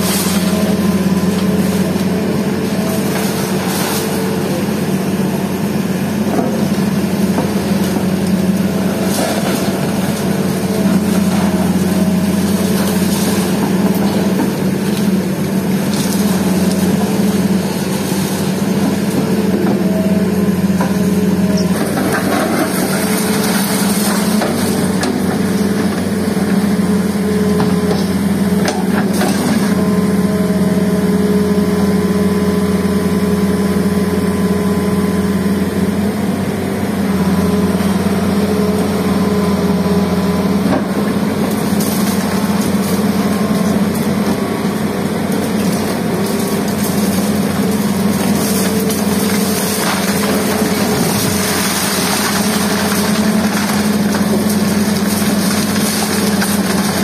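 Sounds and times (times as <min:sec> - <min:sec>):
falling rubble: 0:00.0 - 0:30.2, 0:37.1 - 0:57.0
excavator diesel engine running: 0:00.0 - 0:57.0
concrete cracking and clattering: 0:21.6 - 0:26.2, 0:40.6 - 0:44.4, 0:45.2 - 0:57.0.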